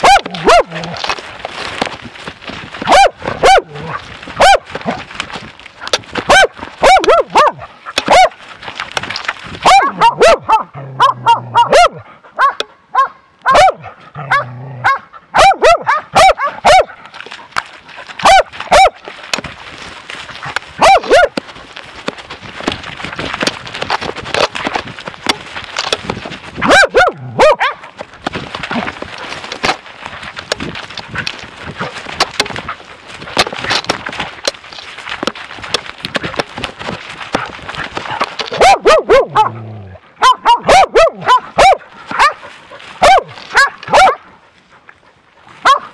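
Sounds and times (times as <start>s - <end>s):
dogs barking: 0.0s - 1.2s, 2.8s - 5.0s, 6.3s - 8.4s, 9.6s - 17.1s, 18.2s - 19.1s, 20.8s - 21.4s, 26.6s - 28.0s, 38.1s - 44.3s, 45.6s - 45.9s
rustling through brush: 0.0s - 45.9s.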